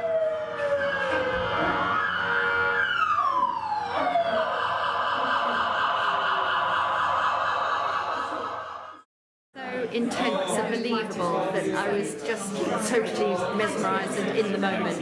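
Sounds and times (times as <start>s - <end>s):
emergency siren wailing: 0.0s - 9.0s.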